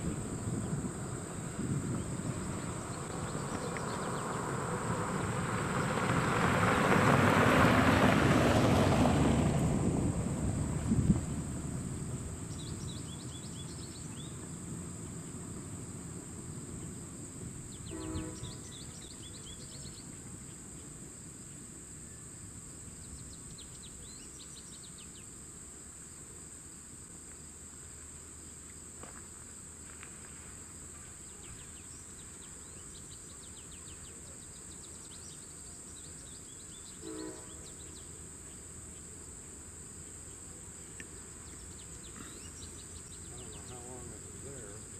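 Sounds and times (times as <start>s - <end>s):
train rumbling: 0.0s - 20.3s
high insect drone: 0.0s - 44.9s.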